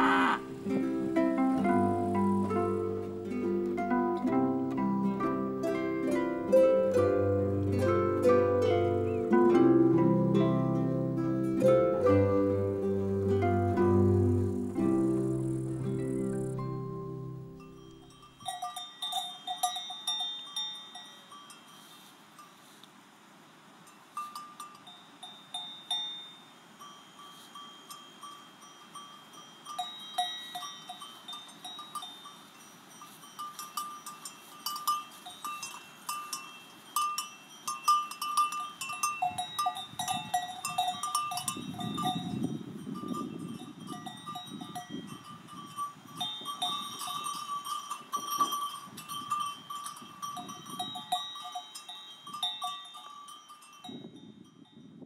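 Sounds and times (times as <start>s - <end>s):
cowbells clanking: 0.0s - 9.4s, 13.7s - 22.5s, 23.9s - 55.0s
low rustle: 21.5s - 23.5s.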